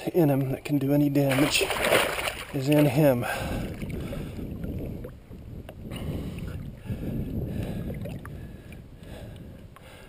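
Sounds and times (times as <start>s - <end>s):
wind buffeting the microphone: 0.6s - 10.0s.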